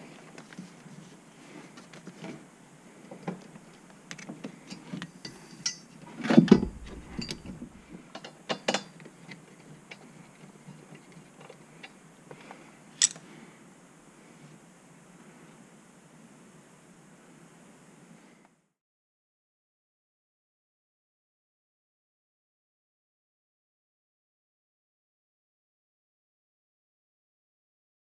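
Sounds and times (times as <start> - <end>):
metallic clicks and clunks of bolts: 13.0 - 13.2.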